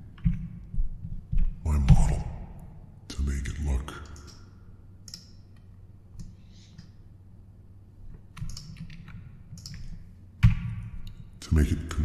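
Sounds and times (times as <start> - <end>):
keyboard and mouse clicking: 4.0 - 6.9, 8.3 - 10.0.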